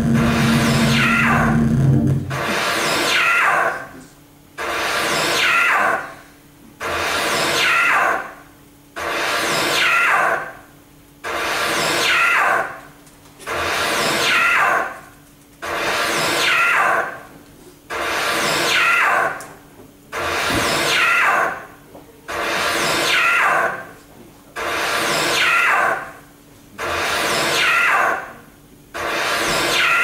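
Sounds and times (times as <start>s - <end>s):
low steady hum: 0.0s - 2.6s
electronic noise bursts sweeping down: 0.0s - 3.4s.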